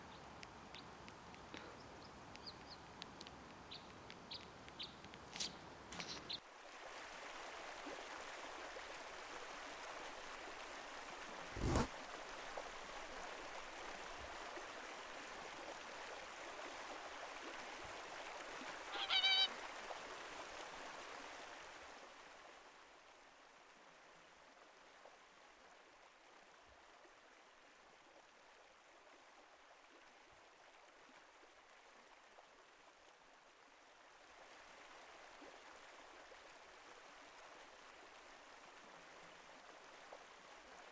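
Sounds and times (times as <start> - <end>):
running water rushing: 0.0 - 40.9
swan honking call: 18.9 - 19.6.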